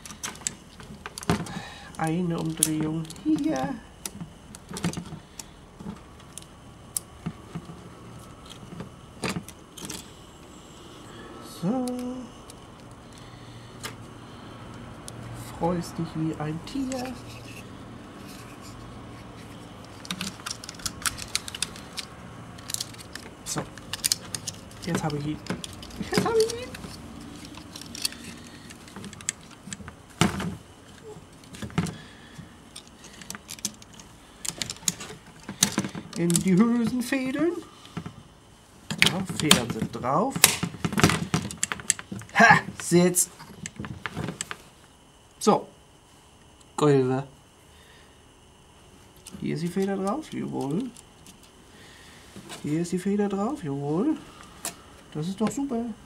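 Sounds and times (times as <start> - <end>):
metal cable clicks and rattles: 0.0 - 10.1, 19.4 - 37.0, 38.9 - 42.4.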